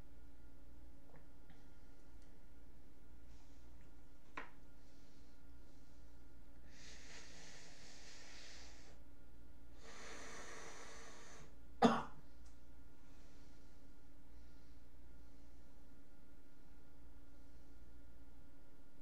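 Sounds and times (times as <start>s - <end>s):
man breathing: 4.7s - 9.0s, 9.7s - 11.6s, 13.0s - 16.0s
man coughing: 11.8s - 12.2s.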